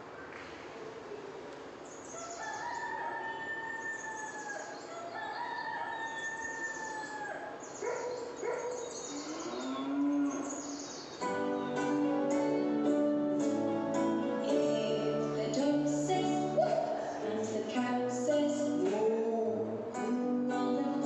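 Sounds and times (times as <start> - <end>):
rooster crowing: 2.1 - 7.6
low animal calls: 9.0 - 10.7.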